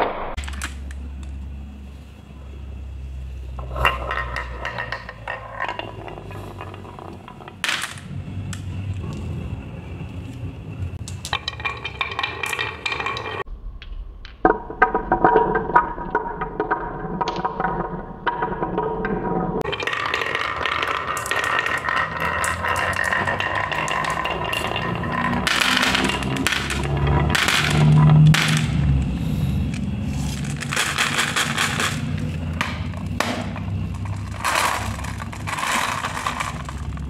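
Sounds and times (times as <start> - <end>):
marbles clattering into tray: 0.4 - 1.4, 3.5 - 9.2, 11.0 - 37.0
marbles rolling on wooden track: 0.4 - 1.5, 3.1 - 37.0
marbles clicking together: 11.0 - 18.4, 19.6 - 37.0.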